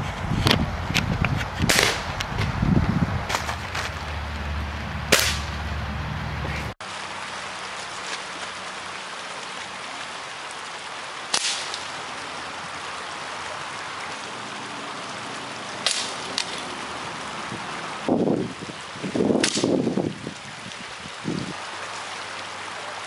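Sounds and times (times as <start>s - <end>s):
bb gun shots cracking: 1.7s - 2.1s, 5.1s - 5.6s
river rushing: 3.2s - 23.0s.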